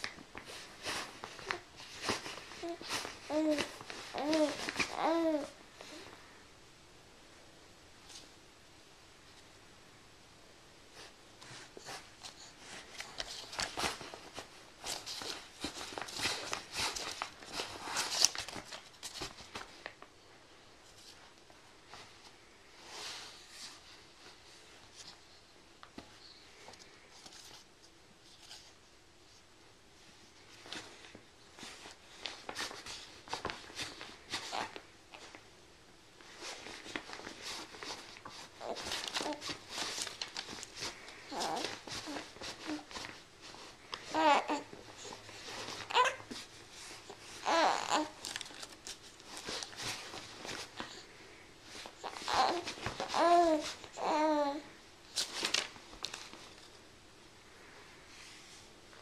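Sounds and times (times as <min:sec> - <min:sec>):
paper and fabric rustling: 0:00.0 - 0:06.3, 0:10.9 - 0:35.5, 0:36.1 - 0:56.9
sleeper rustling against pad: 0:00.0 - 0:06.3.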